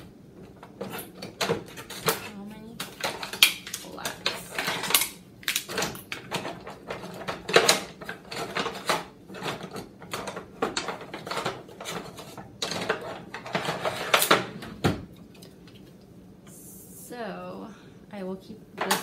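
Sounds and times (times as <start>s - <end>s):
utensils clattering in a drawer: 0.4s - 14.7s.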